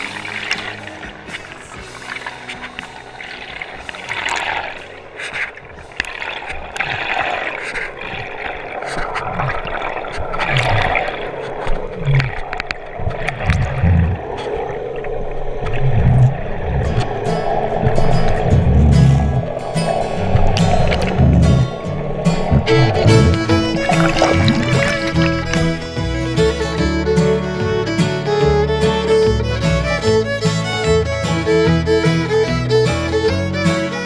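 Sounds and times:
crackles: 0.0s - 26.0s
water gurgling and rushing: 0.0s - 34.0s
dull low thumps: 15.8s - 34.0s.

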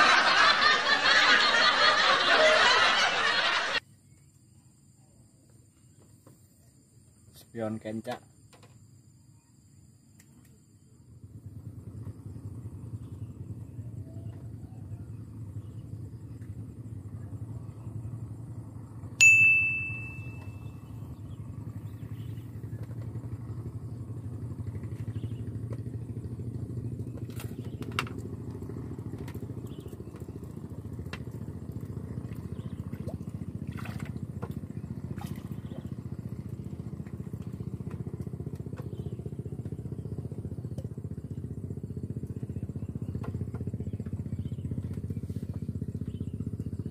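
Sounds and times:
low motor rumble: 0.0s - 4.3s, 10.4s - 46.9s
bell-like ding: 19.2s - 20.6s.

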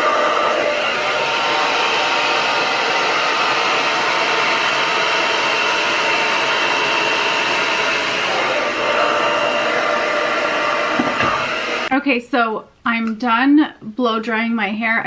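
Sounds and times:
hair dryer running: 0.0s - 12.0s.

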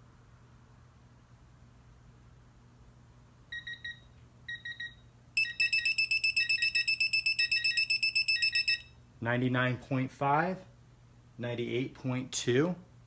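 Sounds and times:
short electronic beeps: 3.5s - 9.0s
rapid run of beeps: 3.6s - 8.9s.

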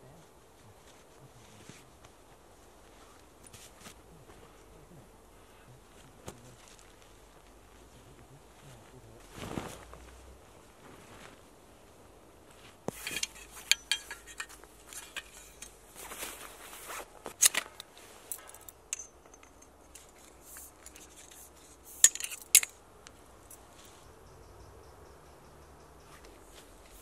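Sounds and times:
canvas rustling: 0.0s - 22.7s
tent poles clicking and scraping: 3.0s - 4.6s, 12.5s - 23.9s.

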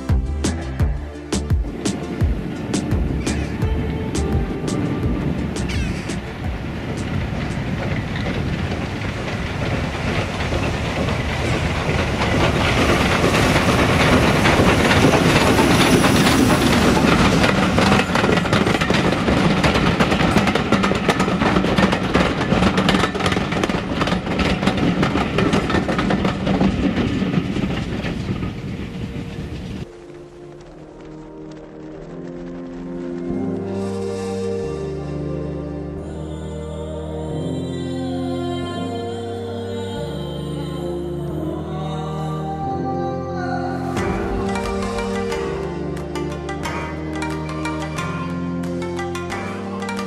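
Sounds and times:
wheels clicking over rail joints: 0.0s - 33.8s, 43.8s - 50.0s
steam train rumbling past: 0.0s - 36.4s, 43.4s - 50.0s.

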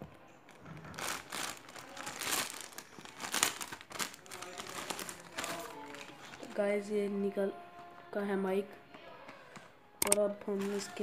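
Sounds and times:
plastic bag crinkling: 0.5s - 6.8s, 10.5s - 11.0s.

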